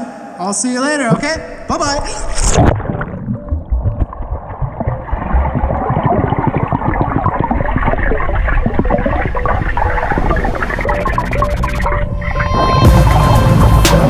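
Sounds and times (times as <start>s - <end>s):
muffled underwater water rushing: 1.1s - 13.3s
crackle of bubbles: 2.1s - 12.3s.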